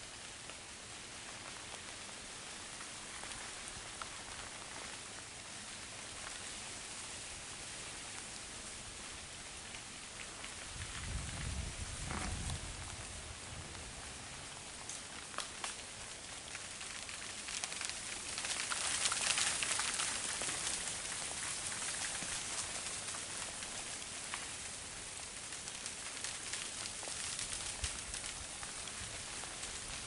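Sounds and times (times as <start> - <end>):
freezing rain on dry leaves: 0.0 - 30.0.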